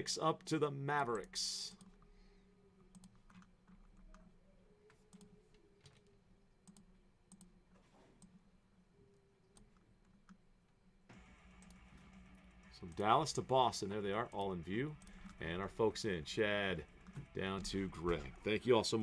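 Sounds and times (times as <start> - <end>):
low steady hum: 8.3 - 19.0.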